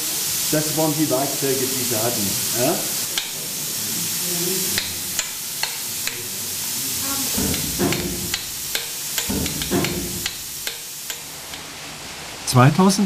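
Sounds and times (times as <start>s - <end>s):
steady hiss: 0.0s - 13.0s
hammer striking chisel on rock: 3.2s - 3.4s, 4.8s - 6.2s, 7.4s - 11.7s.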